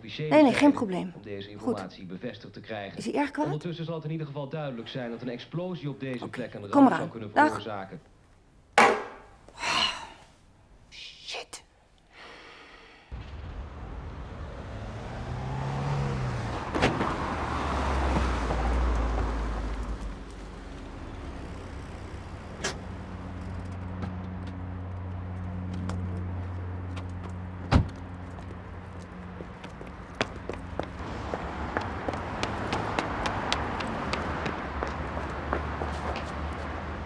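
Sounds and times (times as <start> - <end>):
sharp knocks: 8.8 - 9.3
car engine idling: 18.4 - 25.1.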